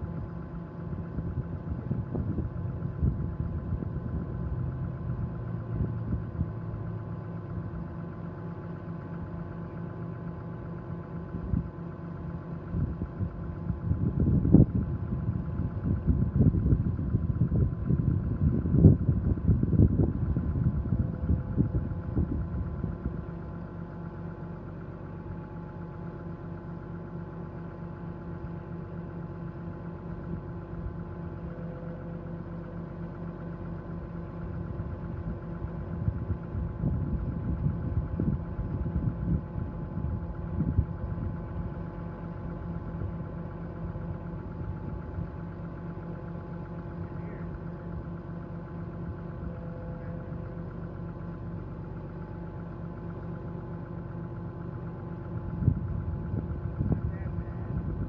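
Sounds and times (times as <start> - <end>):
truck engine running: 0.0 - 58.0
low rumble: 12.8 - 23.3, 30.1 - 58.0.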